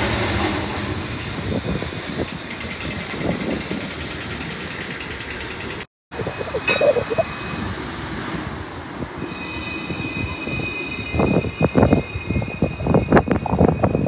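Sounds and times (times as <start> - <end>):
tram rumble: 0.0 - 14.0
high steady whine: 6.1 - 7.7.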